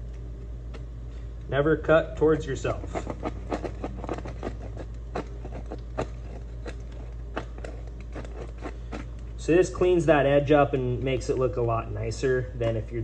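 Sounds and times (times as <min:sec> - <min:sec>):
steady low hum: 0:00.0 - 0:13.0
razor blade scraping plastic: 0:02.7 - 0:09.2.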